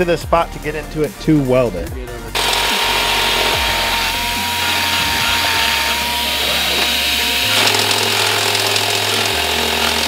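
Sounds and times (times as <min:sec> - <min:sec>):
die grinder grinding metal: 0:02.4 - 0:10.0.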